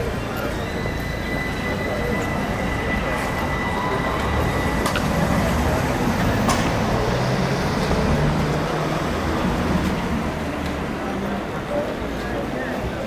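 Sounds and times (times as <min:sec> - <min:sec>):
large vehicle engine running: 0:00.0 - 0:13.0
street traffic: 0:00.0 - 0:13.0.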